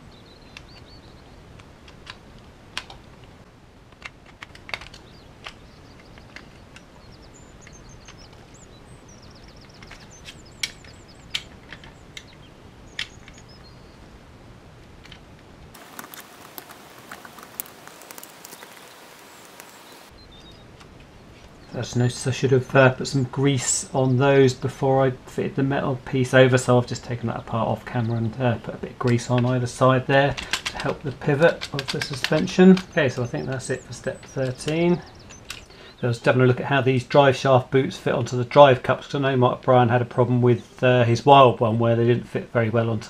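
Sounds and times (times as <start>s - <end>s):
faint bird chirps: 0.0s - 1.4s, 5.0s - 14.1s, 16.9s - 20.7s, 32.8s - 36.2s
plastic parts clicking by hand: 1.6s - 3.0s, 3.9s - 6.9s, 9.6s - 12.4s, 30.3s - 35.7s.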